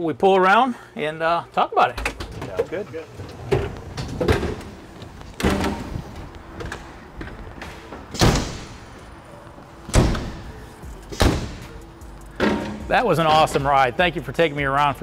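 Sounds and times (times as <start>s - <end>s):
truck doors thudding shut: 5.4s - 8.9s, 9.9s - 11.8s.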